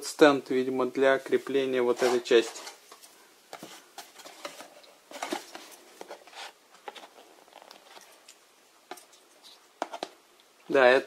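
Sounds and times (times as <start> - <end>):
packaging rustling and scraping: 1.8 - 8.2.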